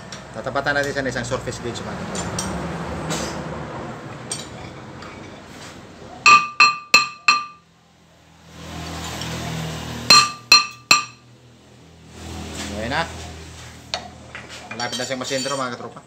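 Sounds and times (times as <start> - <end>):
hammer tapping metal rotor: 6.3 - 7.6, 10.1 - 11.2.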